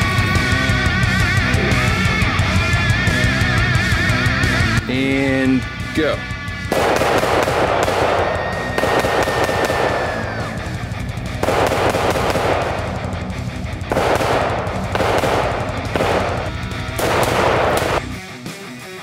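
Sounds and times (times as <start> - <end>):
background music: 0.0 - 19.0
rapid rifle shots: 6.5 - 18.4.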